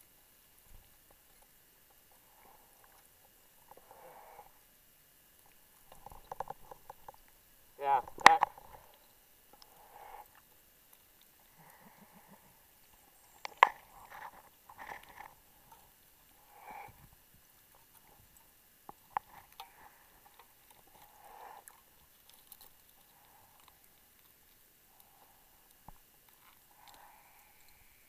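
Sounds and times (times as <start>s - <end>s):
muffled underwater clicks and knocks: 5.4s - 7.4s.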